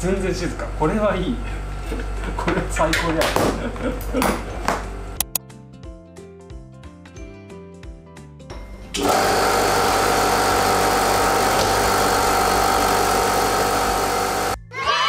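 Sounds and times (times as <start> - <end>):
air compressor running: 9.0 - 14.6.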